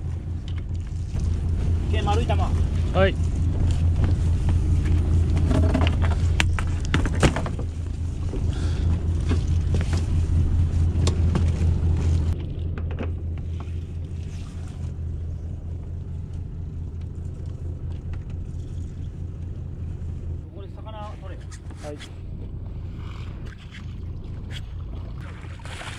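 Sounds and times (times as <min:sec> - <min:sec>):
boat engine humming: 0:00.0 - 0:25.9
knocks and clatter of gear: 0:03.2 - 0:10.2.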